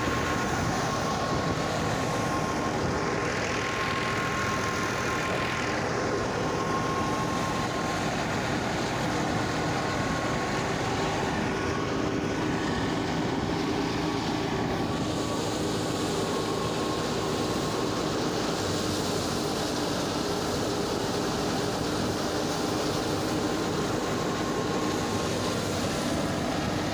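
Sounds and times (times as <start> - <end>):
thresher and tractor running: 0.0 - 26.9.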